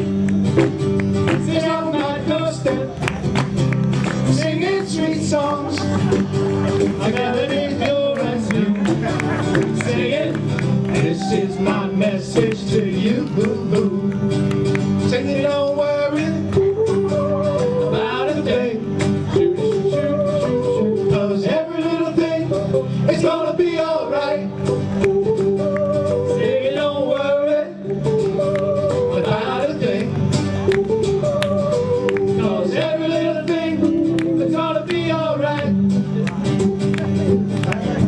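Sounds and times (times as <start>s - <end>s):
acoustic guitar: 0.0s - 38.0s
men singing into microphones: 1.2s - 3.1s, 4.2s - 36.3s.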